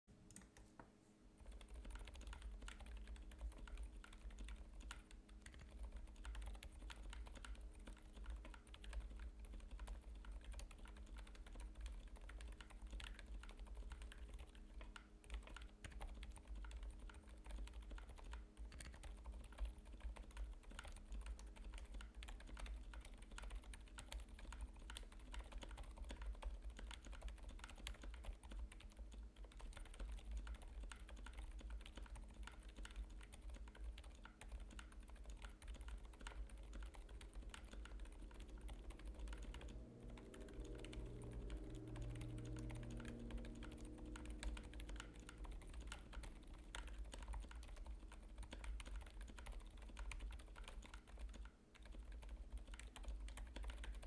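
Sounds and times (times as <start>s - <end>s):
mechanical keyboard typing: 0.3s - 0.7s, 1.4s - 54.0s
low hum: 36.3s - 47.3s.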